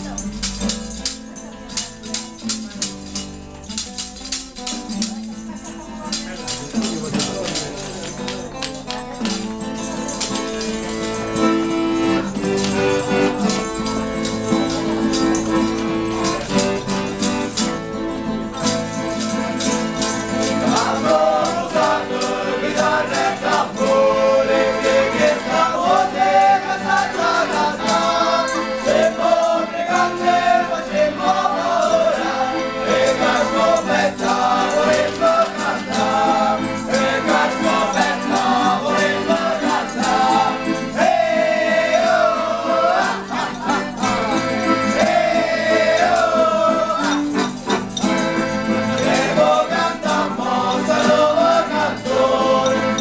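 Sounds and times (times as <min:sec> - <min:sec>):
acoustic guitar: 0:00.0 - 0:53.0
tambourine: 0:00.0 - 0:53.0
piano accordion: 0:09.2 - 0:53.0
men singing together: 0:20.4 - 0:53.0.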